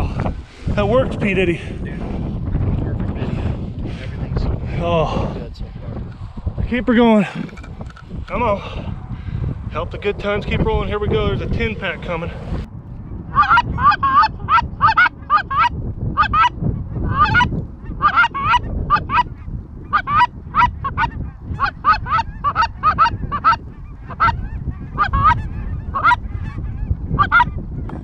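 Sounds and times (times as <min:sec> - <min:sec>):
goose honking and clucking: 0:13.3 - 0:16.5, 0:17.1 - 0:27.6.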